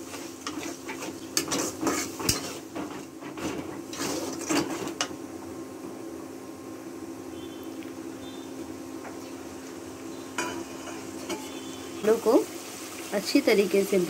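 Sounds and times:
metal spatula scraping pan: 0:00.0 - 0:05.1, 0:10.4 - 0:11.6.

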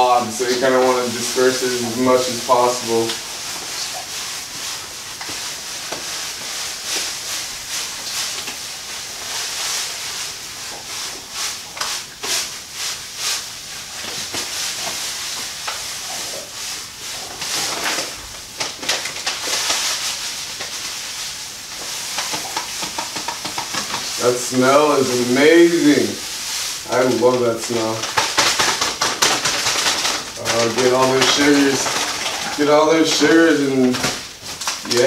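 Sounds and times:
grain pouring into water: 0:00.0 - 0:35.0
paper bag crinkling: 0:00.0 - 0:35.0.

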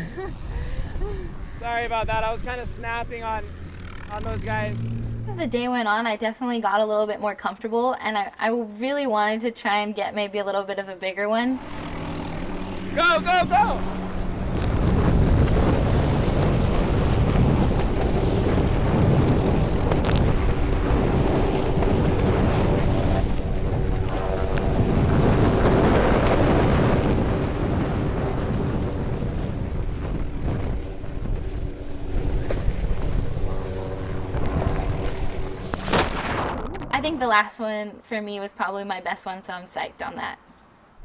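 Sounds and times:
wind buffeting microphone: 0:00.0 - 0:05.9, 0:11.6 - 0:37.4
engine drone: 0:00.0 - 0:06.2, 0:11.2 - 0:37.4.

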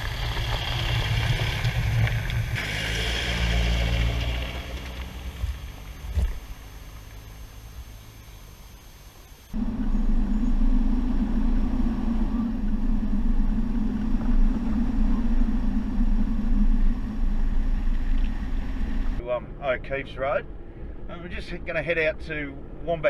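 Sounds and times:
tyres on gravel: 0:00.0 - 0:08.4
vehicle engine droning: 0:00.0 - 0:23.0
wind: 0:00.0 - 0:23.0.

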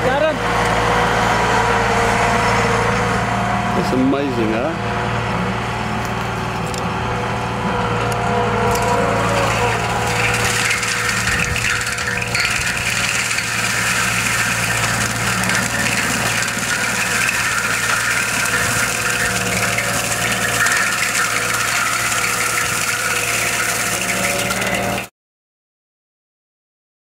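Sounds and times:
loader engine running: 0:00.0 - 0:25.1
mulcher whining through brush: 0:07.5 - 0:25.1.

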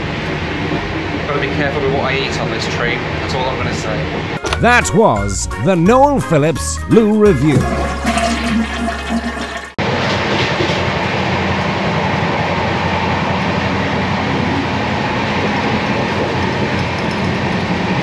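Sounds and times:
animated sting music: 0:04.4 - 0:09.7.

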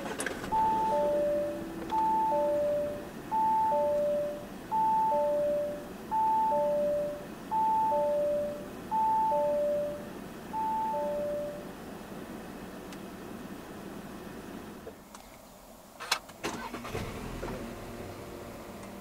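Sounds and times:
two-tone warning chime: 0:00.5 - 0:11.6.

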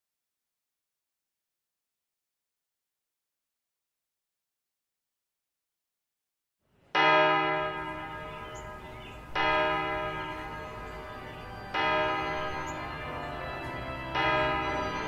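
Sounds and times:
church bell tolling: 0:07.0 - 0:15.0.

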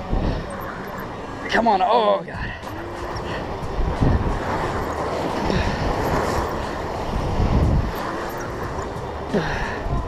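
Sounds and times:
wind buffeting microphone: 0:02.3 - 0:10.0.

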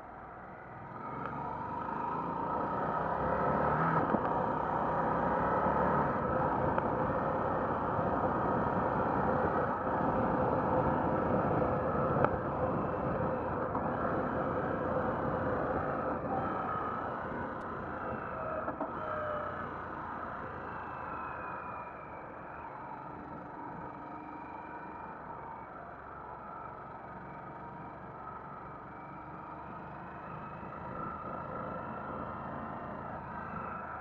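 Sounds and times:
motorcycle engine accelerating: 0:00.9 - 0:21.5.

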